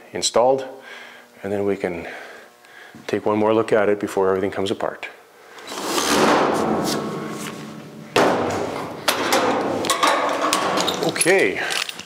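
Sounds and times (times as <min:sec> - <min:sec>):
metal thumps and knocks: 0:06.3 - 0:11.2.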